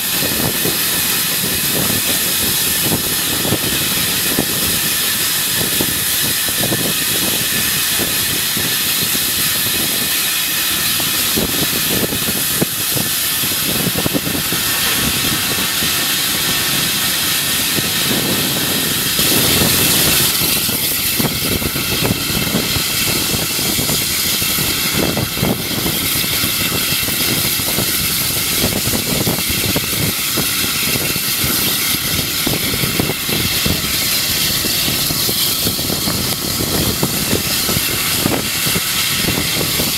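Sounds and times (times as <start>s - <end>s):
steam hissing: 0.0s - 39.9s
steam locomotive running: 0.0s - 39.9s.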